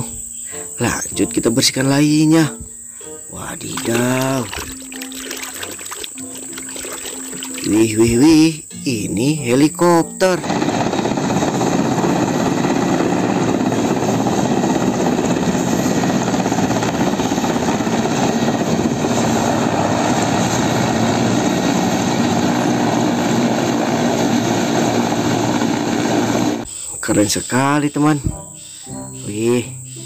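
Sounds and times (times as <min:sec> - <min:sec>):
helicopter rotor and engines: 0:10.3 - 0:26.7.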